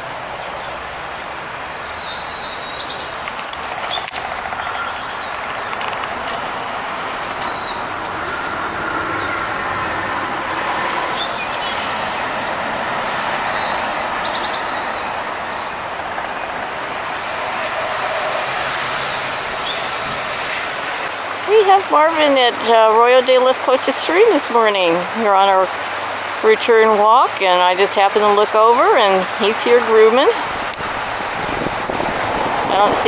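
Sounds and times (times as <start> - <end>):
small birds chirping: 0.3 - 6.4, 7.1 - 9.7, 10.4 - 21.1.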